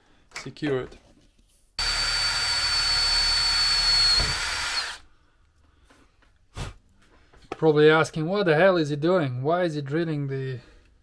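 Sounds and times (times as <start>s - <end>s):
power drill whining: 1.8s - 5.0s.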